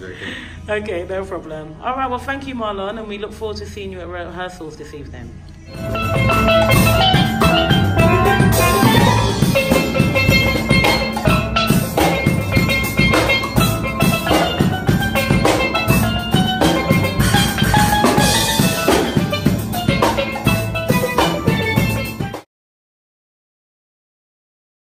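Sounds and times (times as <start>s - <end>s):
steel pans ringing: 5.7s - 22.2s
drum kit steady beat: 5.7s - 22.4s.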